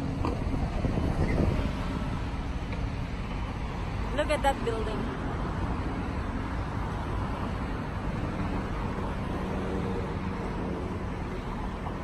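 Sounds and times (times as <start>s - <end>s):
city traffic noise: 0.0s - 12.0s.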